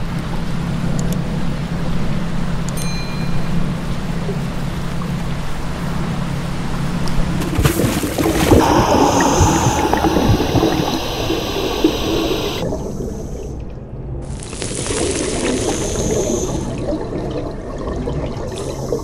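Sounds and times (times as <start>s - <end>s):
rushing gurgling water: 7.4s - 19.0s
low motor hum: 8.5s - 13.3s.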